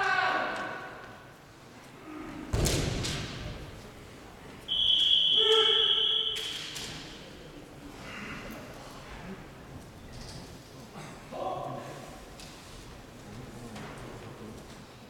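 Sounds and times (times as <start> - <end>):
thud echoing in a hall: 2.4 - 7.5.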